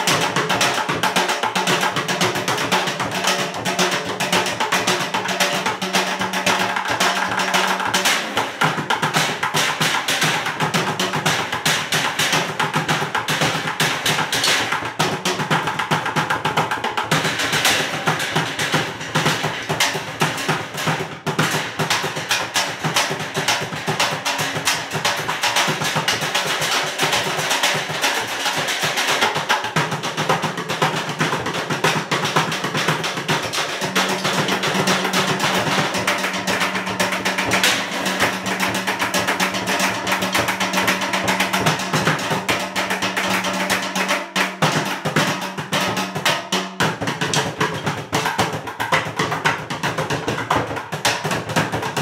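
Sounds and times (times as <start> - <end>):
drumming on buckets and cans: 0.0 - 52.0.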